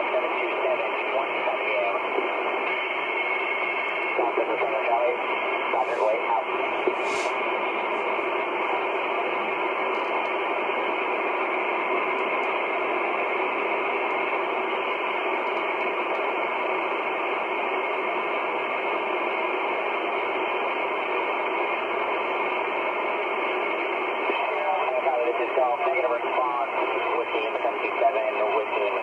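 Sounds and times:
radio receiver static hiss: 0.0s - 29.0s.

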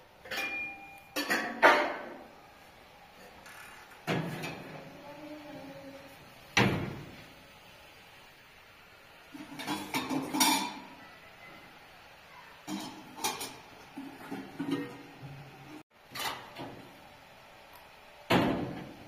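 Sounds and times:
objects clattering: 9.4s - 10.8s.

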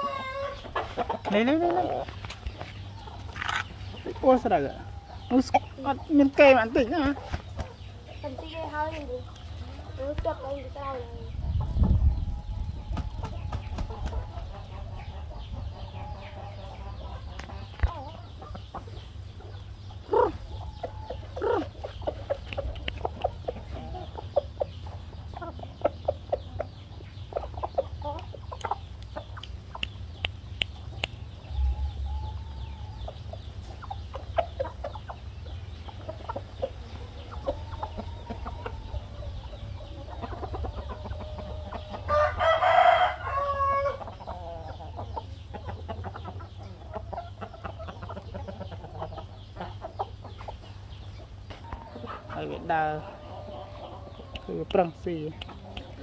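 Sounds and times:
loud chicken call: 0.0s - 0.7s, 41.2s - 44.1s
chickens clucking softly: 0.0s - 56.0s.

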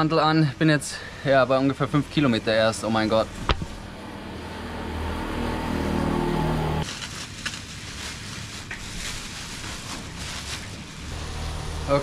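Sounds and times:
vehicle engine running: 11.0s - 12.0s.

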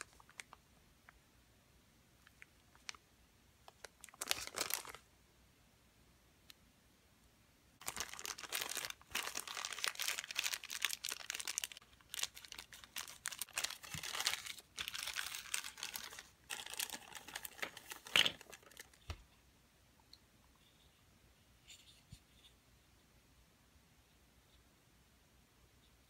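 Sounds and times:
plastic packaging crinkling: 3.7s - 5.0s, 7.8s - 19.2s.

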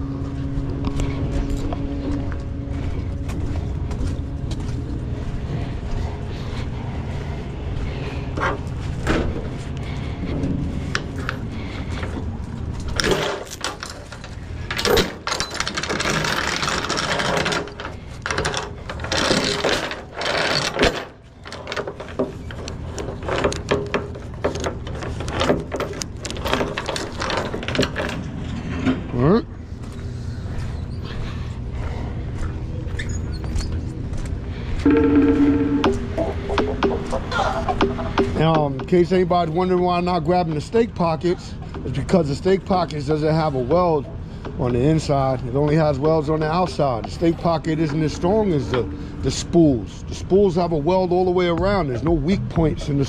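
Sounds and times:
steady low hum: 0.0s - 53.0s
steel chain rattling and scraping: 9.8s - 29.4s, 44.7s - 53.0s.

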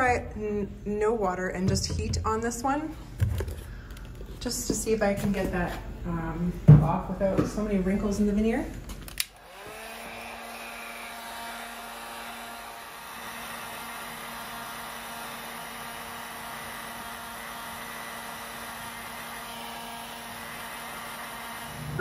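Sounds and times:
heat gun blowing hot air: 9.2s - 22.0s.

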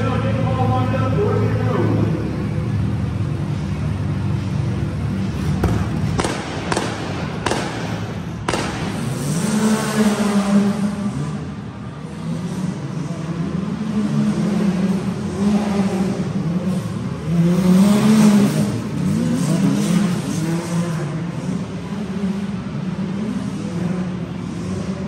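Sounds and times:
off-road engines revving: 0.0s - 25.0s
sharp bangs: 5.5s - 10.9s.

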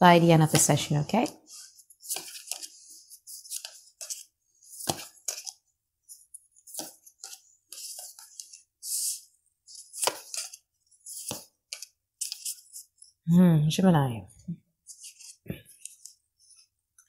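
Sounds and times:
cards riffling and rustling: 1.4s - 13.1s, 14.9s - 16.7s.

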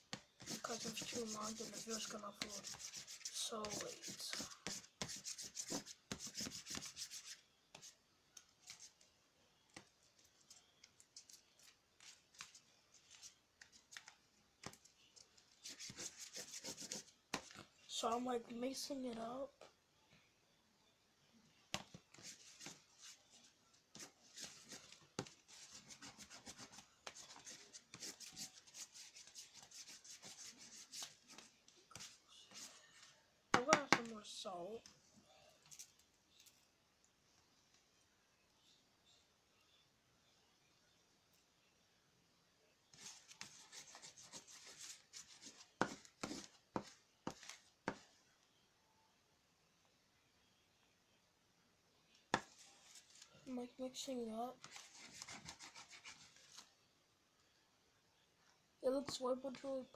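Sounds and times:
rubbing and scraping on paper plate: 0.4s - 7.4s.

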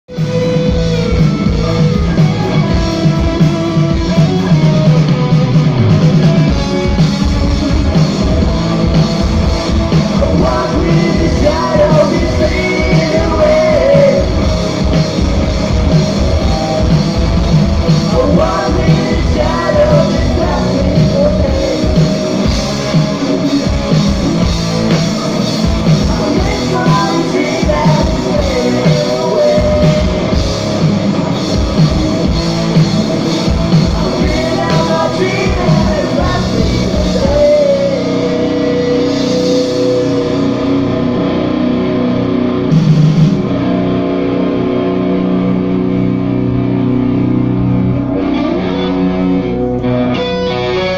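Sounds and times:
bass guitar: 0.0s - 50.9s
electric guitars: 0.0s - 50.9s
drum kit: 0.1s - 50.9s
person singing: 10.1s - 14.4s, 18.0s - 22.5s, 26.0s - 30.5s, 33.8s - 41.3s.

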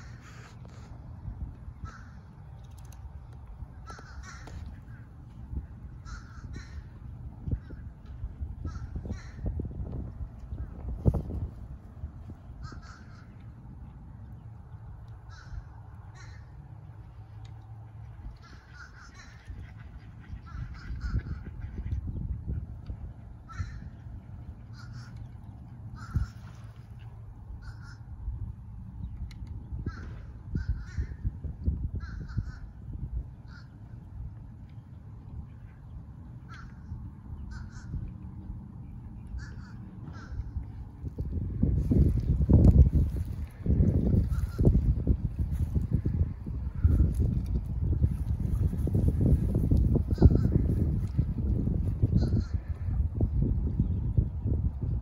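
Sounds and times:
low rumble: 0.0s - 55.0s
harsh crow-like bird calls: 1.7s - 2.6s, 3.7s - 7.9s, 8.5s - 10.0s, 12.4s - 13.6s, 15.2s - 16.7s, 18.2s - 21.8s, 23.4s - 26.8s, 27.5s - 28.2s, 29.7s - 34.0s, 36.4s - 38.2s, 39.2s - 53.2s.

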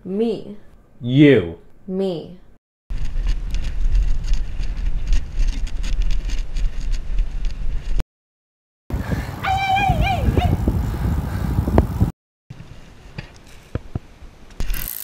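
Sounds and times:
road noise: 8.9s - 12.1s
wind buffeting microphone: 8.9s - 12.1s
high voice calling out: 9.4s - 10.6s.

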